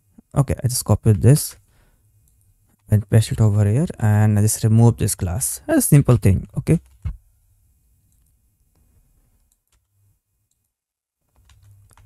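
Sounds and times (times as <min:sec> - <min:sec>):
keyboard keys clicking: 0:11.3 - 0:12.0.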